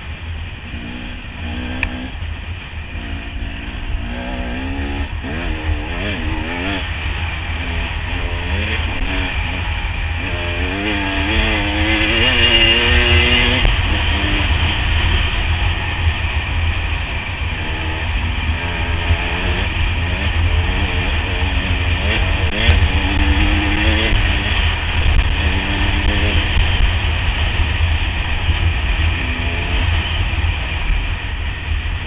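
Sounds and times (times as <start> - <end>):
motorcycle engine: 0.0 - 32.0.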